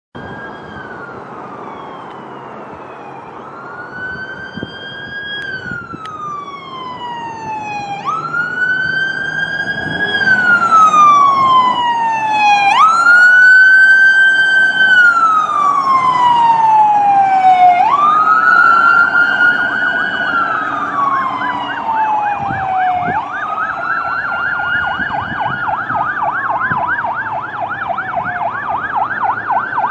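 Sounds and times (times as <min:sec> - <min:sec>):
rapid siren yelp: 0:00.2 - 0:29.9
siren wailing: 0:00.2 - 0:29.9.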